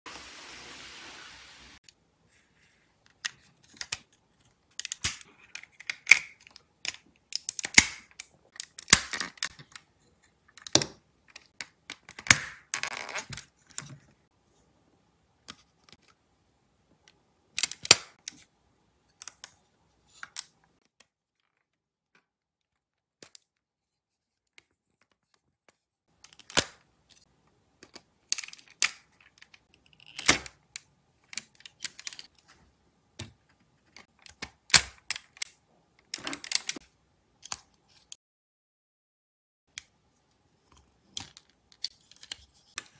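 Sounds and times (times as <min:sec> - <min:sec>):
plastic bricks clicking and snapping: 0:04.7 - 0:09.8, 0:17.0 - 0:18.4, 0:27.8 - 0:32.4.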